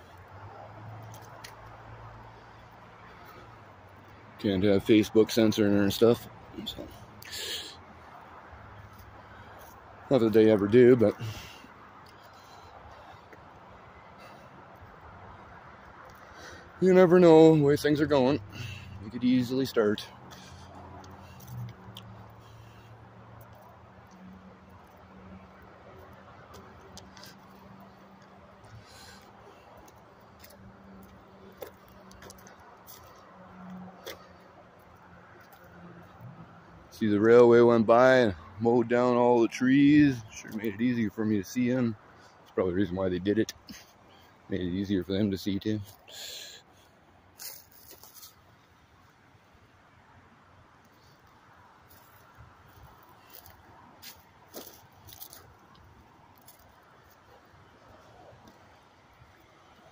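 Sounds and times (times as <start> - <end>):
footsteps on gravel: 26.0 - 36.2, 47.4 - 48.4, 51.9 - 57.3.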